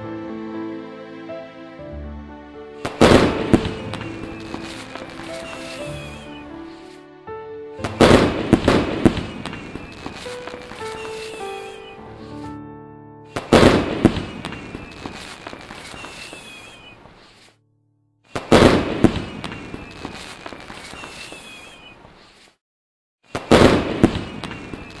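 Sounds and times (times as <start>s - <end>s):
fireworks bang and crackle: 2.8s - 7.0s, 7.8s - 12.3s, 13.4s - 17.6s, 18.3s - 22.6s, 23.3s - 25.0s
faint falling whistles: 3.7s - 6.8s, 9.2s - 12.0s, 14.2s - 17.5s, 19.1s - 22.0s.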